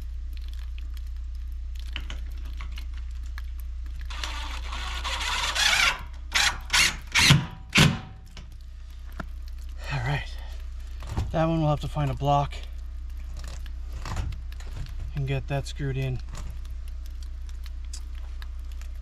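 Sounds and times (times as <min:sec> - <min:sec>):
steady low hum: 0:00.0 - 0:19.0
cordless drill driving screws: 0:04.1 - 0:08.0.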